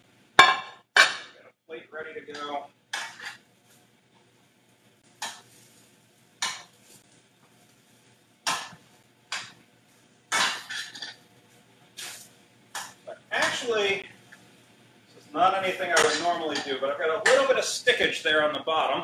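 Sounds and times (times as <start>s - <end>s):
tongs clattering against a pan: 2.3s - 3.4s, 5.2s - 7.1s, 8.4s - 9.6s, 10.3s - 11.2s, 12.0s - 13.9s, 15.8s - 18.0s.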